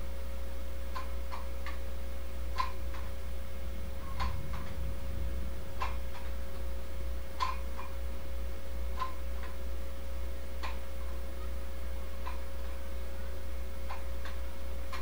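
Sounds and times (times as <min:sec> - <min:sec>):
steady hum: 0:00.0 - 0:10.6.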